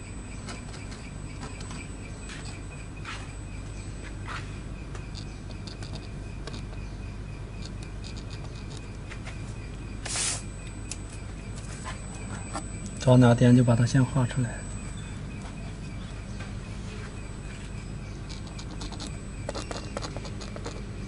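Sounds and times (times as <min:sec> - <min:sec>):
low hum: 0:00.0 - 0:21.0
pen tapping and scratching: 0:05.0 - 0:07.0, 0:07.6 - 0:09.3, 0:18.2 - 0:21.0.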